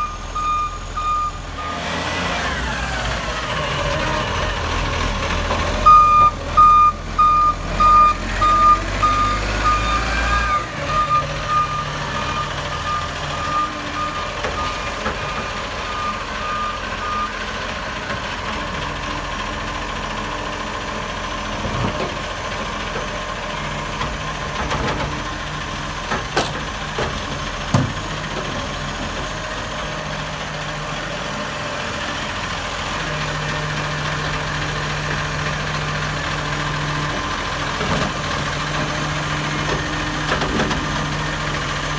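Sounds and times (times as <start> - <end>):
truck reversing alarm beeping: 0.0 - 3.3, 5.8 - 17.8
truck engine idling: 0.0 - 41.9.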